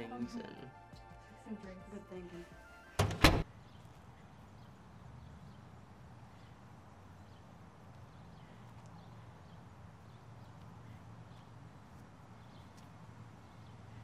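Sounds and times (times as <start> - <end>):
faint outdoor ambience: 0.0 - 14.0
wooden door banging shut: 3.0 - 3.4.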